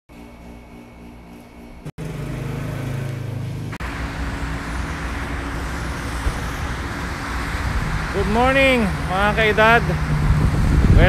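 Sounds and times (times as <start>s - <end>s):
low humming tones: 0.1s - 2.2s, 2.9s - 11.0s
highway traffic rumble: 2.0s - 11.0s.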